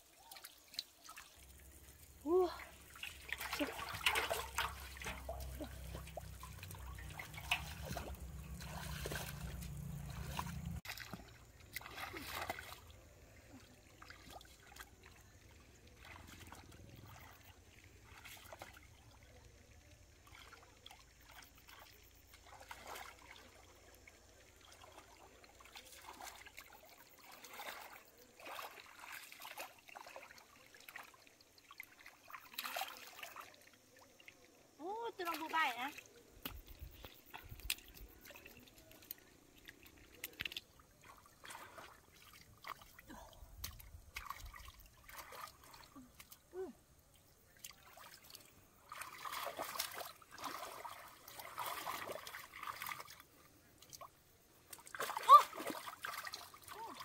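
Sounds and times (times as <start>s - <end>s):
hands splashing in shallow water: 0.2s - 15.1s, 35.3s - 46.5s, 47.5s - 57.0s
low rumble: 6.5s - 10.8s.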